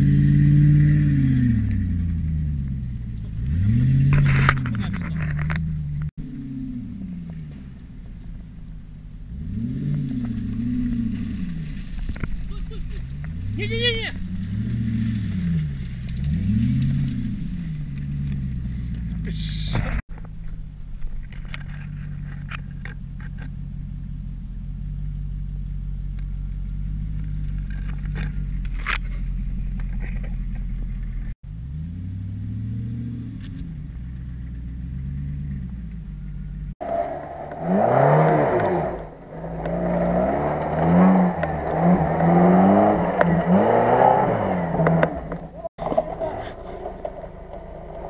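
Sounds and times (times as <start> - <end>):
four-by-four revving hard: 0.0 - 2.5, 3.4 - 5.6, 9.3 - 11.8, 13.3 - 18.8, 36.8 - 48.0
off-road engine revving: 0.0 - 20.7, 21.4 - 48.0
low engine drone: 33.2 - 48.0.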